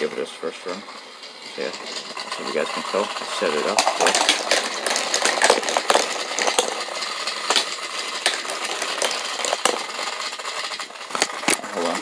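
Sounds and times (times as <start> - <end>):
toy train motor whirring: 0.0 - 12.0
plastic wheel clicks: 2.2 - 12.0.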